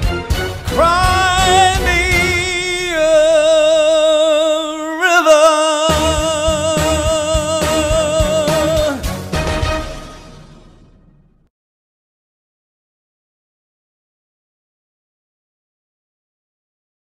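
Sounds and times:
backing music: 0.0 - 11.5
man singing long note: 0.7 - 9.1.

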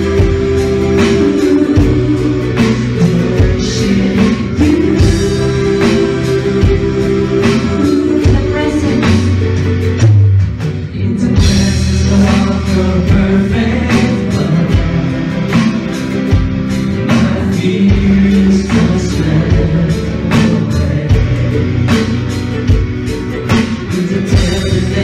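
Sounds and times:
two people singing: 0.0 - 25.0
worship band playing: 0.0 - 25.0.

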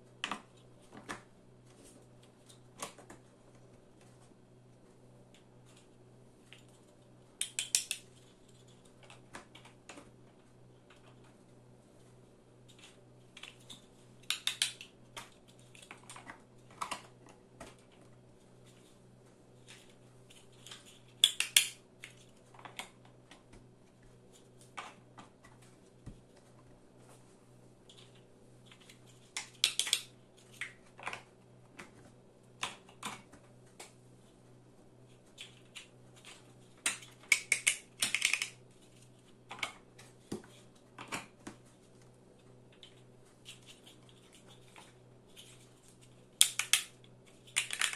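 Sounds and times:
faint low hum: 0.0 - 47.9
plastic blocks clicking: 7.4 - 8.0, 13.4 - 17.1, 20.6 - 22.9, 28.8 - 31.3, 36.8 - 38.6, 46.4 - 47.9.

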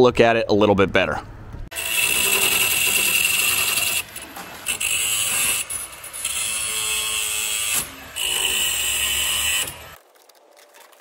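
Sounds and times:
cordless drill running in spurts: 1.7 - 10.0.

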